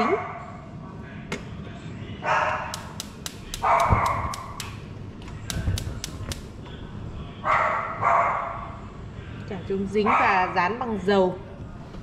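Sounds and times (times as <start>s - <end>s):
dog barking: 2.2s - 2.8s, 3.6s - 4.6s, 7.4s - 8.8s, 10.0s - 10.6s
sharp clicks: 2.7s - 4.8s, 5.4s - 6.5s.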